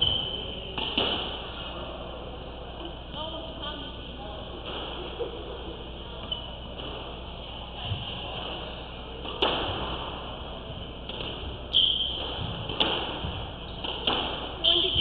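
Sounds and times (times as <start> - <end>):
squash ball cracks: 0.0 - 1.5, 9.2 - 10.3, 11.0 - 15.0.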